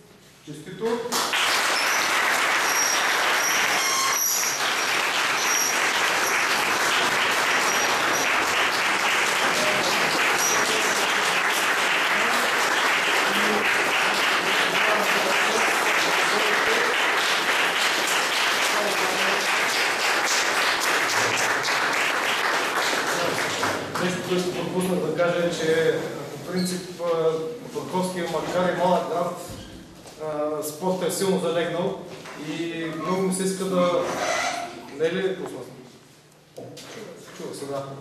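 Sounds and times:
crowd applauding: 0:01.2 - 0:24.4.

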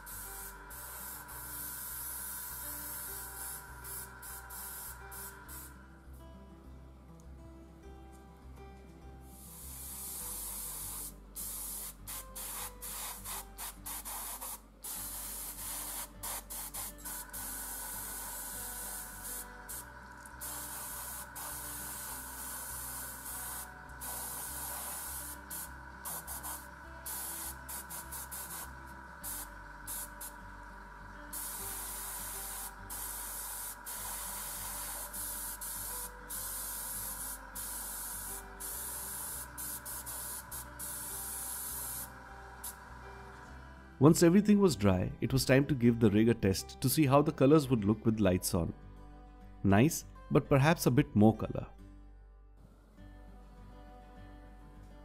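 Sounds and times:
airbrush spraying hiss: 0:00.0 - 0:05.9, 0:09.2 - 0:43.6.

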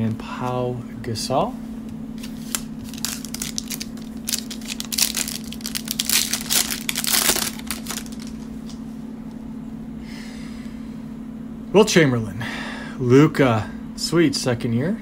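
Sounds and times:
plastic wrapper crinkling and tearing: 0:02.2 - 0:08.5.

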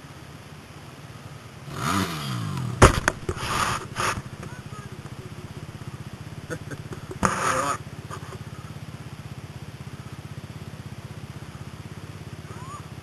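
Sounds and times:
dirt bike engine idling: 0:00.0 - 0:13.0.

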